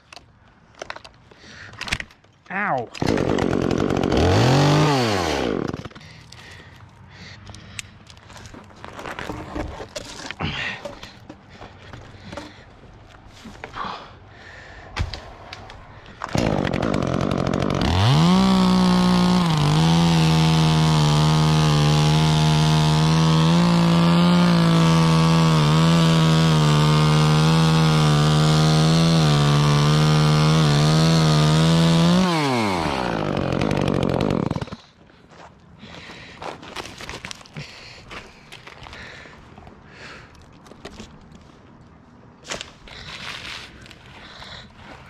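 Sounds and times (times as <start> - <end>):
chainsaw cutting at full throttle: 3.0 - 6.6, 16.3 - 34.9.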